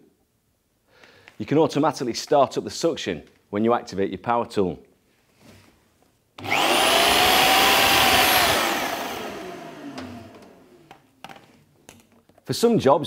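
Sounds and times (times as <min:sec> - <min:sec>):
power drill whine: 0:06.4 - 0:11.0
vacuum cleaner running: 0:06.4 - 0:11.0.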